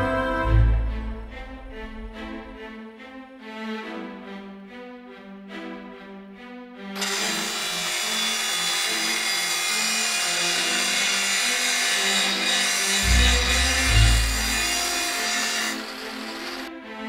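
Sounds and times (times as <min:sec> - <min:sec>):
orchestral music: 0:00.0 - 0:17.0
angle grinder grinding: 0:07.0 - 0:16.7.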